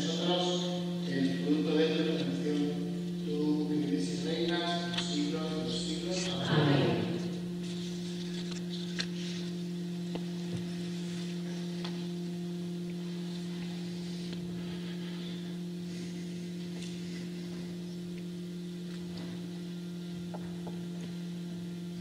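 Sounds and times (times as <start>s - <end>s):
man's voice: 0.0s - 7.3s
low two-tone hum: 0.0s - 22.0s.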